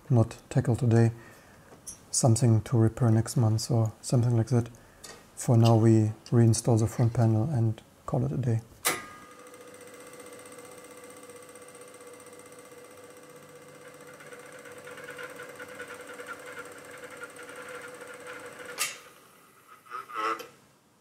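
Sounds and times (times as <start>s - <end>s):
tape deck mechanical whine: 8.8s - 20.6s.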